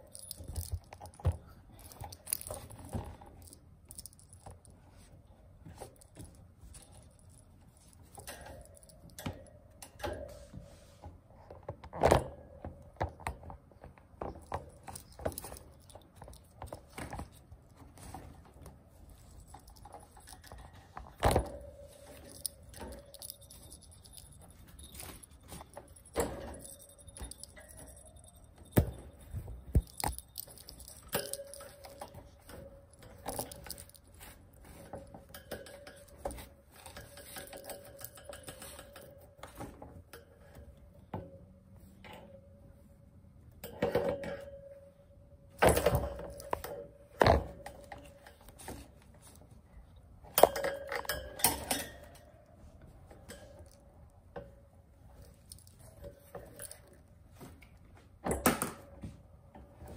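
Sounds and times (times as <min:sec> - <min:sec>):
toy clinking and rattling: 0:00.0 - 0:04.8, 0:05.8 - 0:09.3, 0:14.3 - 0:18.3, 0:18.9 - 0:39.4, 0:55.1 - 0:57.1.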